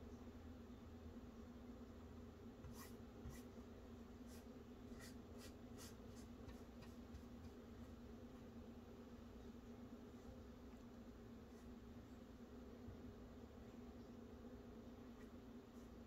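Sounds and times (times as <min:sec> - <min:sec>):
low steady hum: 0:00.0 - 0:16.0
paintbrush swishing on canvas: 0:04.2 - 0:08.0.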